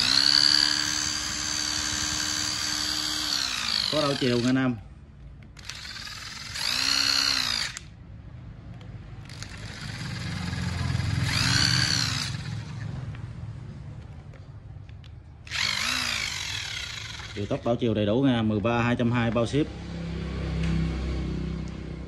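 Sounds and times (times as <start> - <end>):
electric screwdriver motor whirring: 0.0 - 4.6, 5.6 - 8.0, 9.3 - 10.6, 11.2 - 12.8, 15.4 - 17.5.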